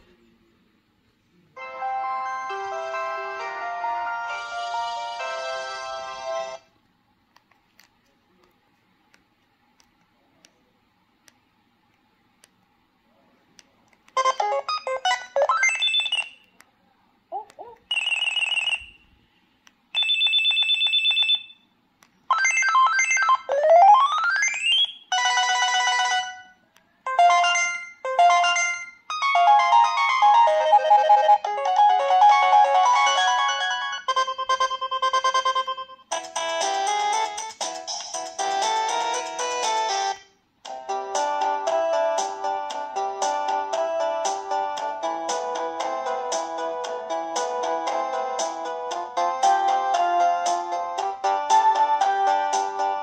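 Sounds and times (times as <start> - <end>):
phone ringtone melodies: 1.6 - 6.6, 14.2 - 16.5, 17.9 - 19.0, 22.3 - 40.3.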